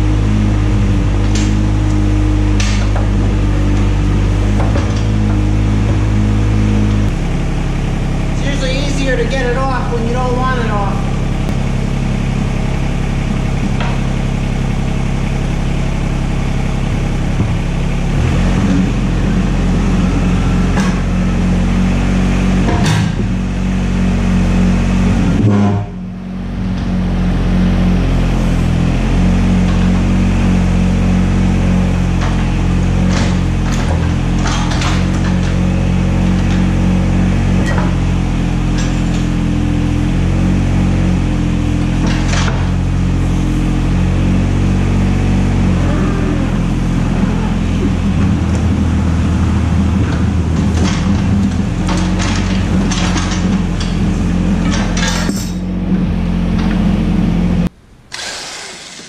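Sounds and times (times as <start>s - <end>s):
diesel engine running: 0.0s - 59.0s
metal clanks: 32.1s - 39.4s, 47.8s - 56.9s.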